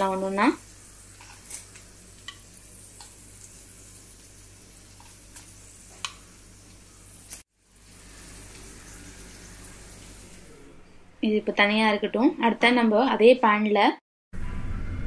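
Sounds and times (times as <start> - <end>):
paneer sizzling in oil: 0.0 - 10.6.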